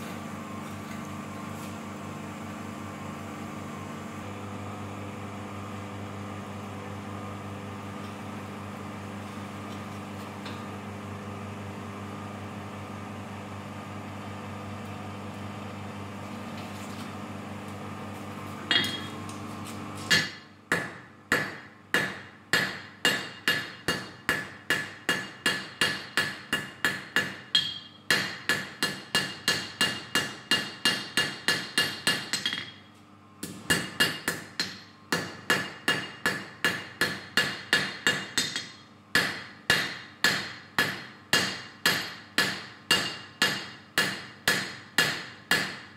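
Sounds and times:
mechanical hum: 0.0 - 45.9
hammer ringing on anvil: 18.7 - 19.1, 20.1 - 32.8, 33.7 - 45.8.

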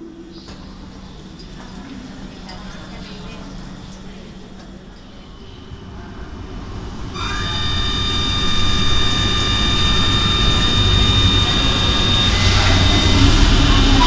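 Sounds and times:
electric whine of train: 0.0 - 14.0
train rumble in tunnel: 0.0 - 14.0.

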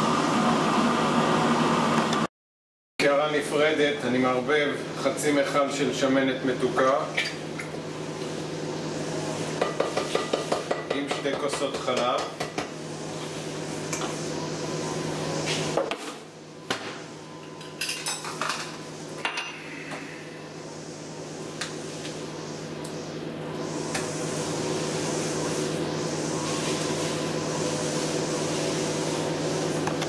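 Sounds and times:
steady low hum: 18.9 - 29.7.

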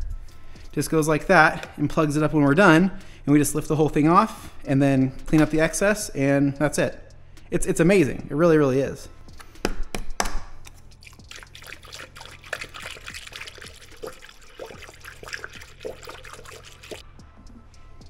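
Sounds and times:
liquid pouring into funnel: 11.0 - 17.0.

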